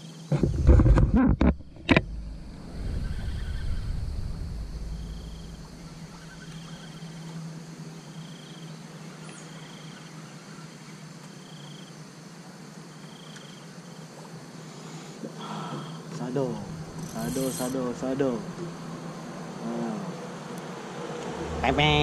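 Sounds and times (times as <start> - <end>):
insect chirping buzzy trills: 0.0 - 22.0
steady low hum: 0.3 - 9.3, 15.3 - 22.0.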